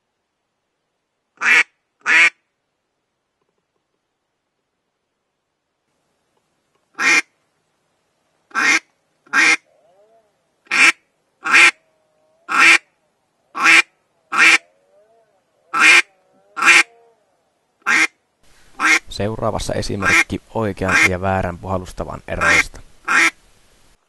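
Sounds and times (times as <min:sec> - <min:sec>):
duck call quacks: 0:01.4 - 0:02.4, 0:07.0 - 0:07.3, 0:08.5 - 0:09.6, 0:10.7 - 0:11.8, 0:12.5 - 0:12.9, 0:13.6 - 0:14.6, 0:15.7 - 0:16.9, 0:17.8 - 0:18.2, 0:18.8 - 0:19.0, 0:20.0 - 0:20.3, 0:20.9 - 0:21.1, 0:22.4 - 0:23.4.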